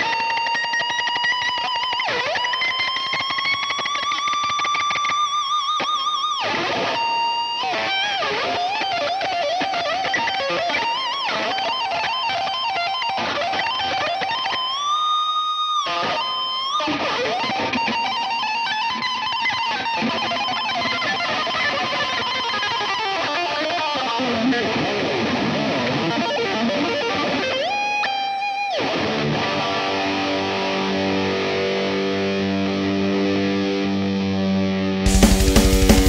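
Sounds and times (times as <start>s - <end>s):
electric guitar lead in metal: 0.0s - 36.0s
sustained low guitar chords: 35.1s - 36.0s.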